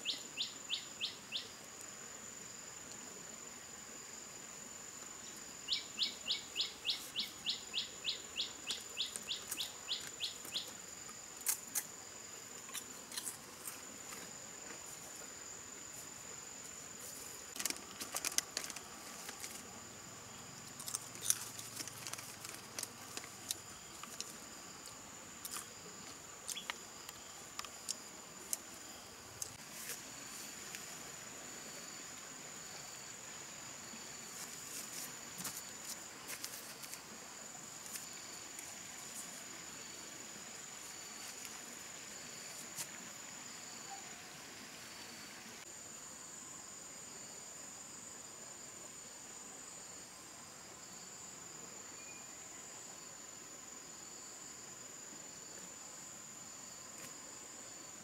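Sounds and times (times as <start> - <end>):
light clicks and rustles: 17.2 - 19.6, 20.8 - 24.4.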